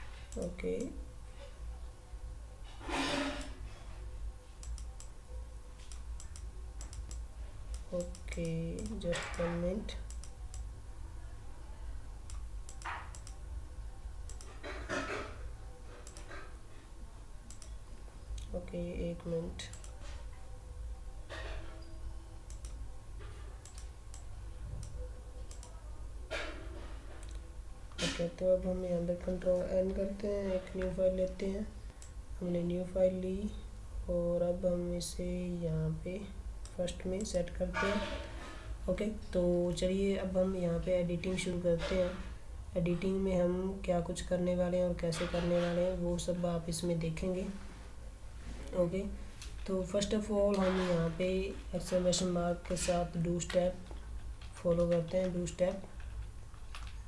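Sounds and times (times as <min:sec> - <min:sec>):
low electrical hum: 0:00.0 - 0:57.0
faint computer mouse clicks: 0:04.6 - 0:05.2, 0:05.8 - 0:10.7, 0:12.3 - 0:13.4, 0:17.5 - 0:17.8, 0:22.5 - 0:22.8, 0:23.6 - 0:25.8.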